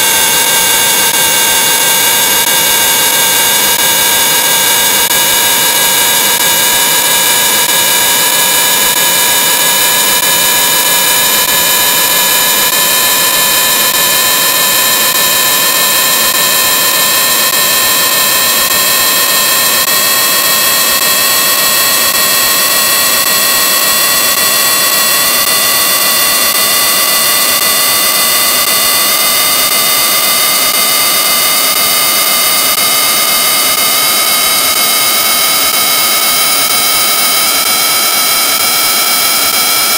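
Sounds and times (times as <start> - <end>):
distorted electronic drone: 0.0 - 39.9.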